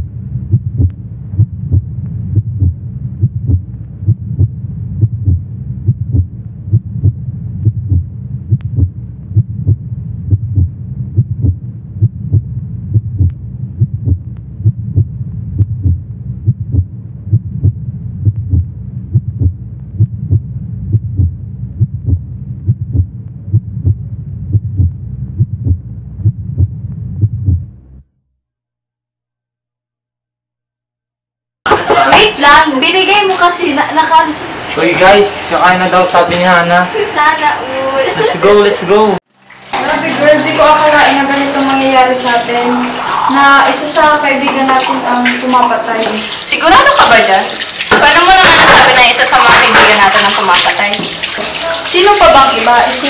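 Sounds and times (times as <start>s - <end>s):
heartbeat thumps: 0.0s - 28.0s
low droning hum: 0.0s - 28.0s.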